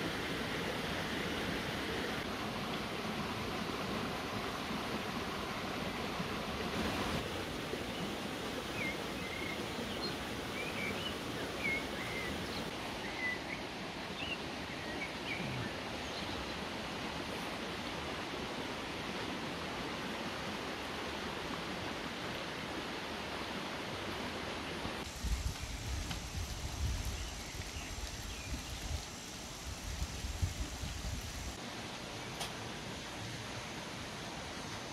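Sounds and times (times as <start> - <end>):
running water: 0.0 - 13.0, 15.2 - 34.9.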